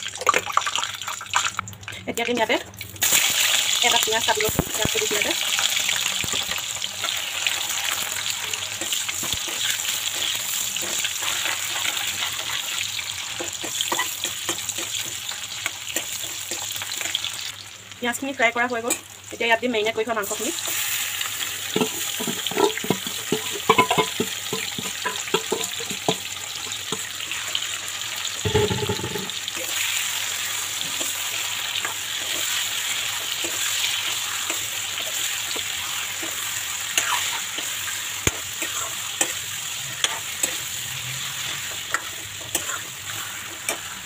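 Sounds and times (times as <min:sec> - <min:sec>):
chicken sizzling in oil: 0:00.0 - 0:01.7, 0:02.8 - 0:44.0
ladle clinking and scraping pan: 0:21.8 - 0:26.2, 0:28.5 - 0:29.4.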